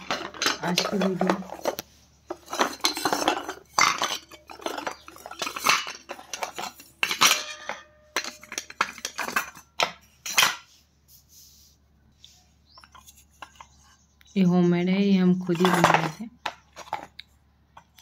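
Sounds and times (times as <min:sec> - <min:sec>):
pot shards clattering in a steel bowl: 0:00.0 - 0:10.7.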